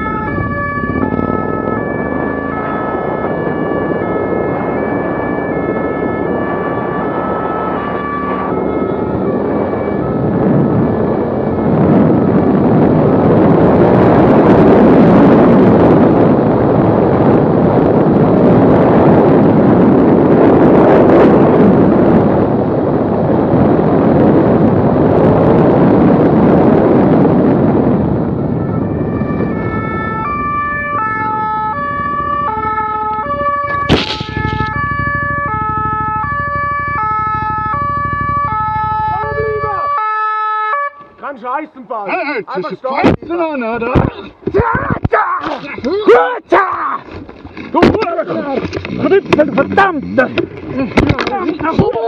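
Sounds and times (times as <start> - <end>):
two-tone emergency siren: 0.0 - 18.0, 23.5 - 41.2
rushing wind: 0.0 - 52.0
engine noise: 27.1 - 40.0, 47.1 - 52.0.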